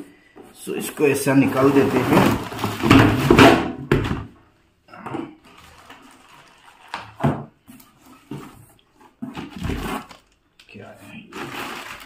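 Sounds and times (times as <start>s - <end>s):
cardboard box scraping and rustling: 1.3s - 3.6s.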